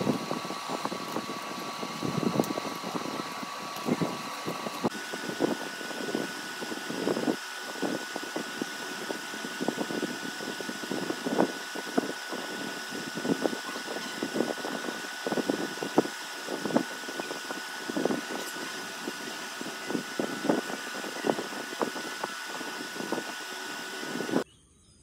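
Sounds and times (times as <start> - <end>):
machine hum: 0.0 - 24.4
thin whine: 0.0 - 24.5.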